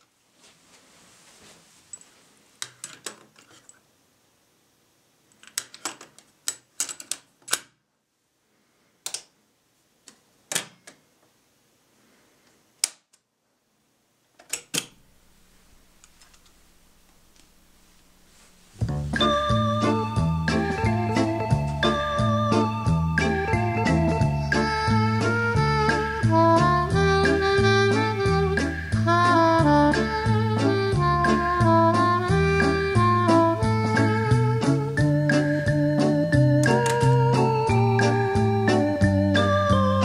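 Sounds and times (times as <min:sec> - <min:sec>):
faint low hum: 0:14.9 - 0:26.7.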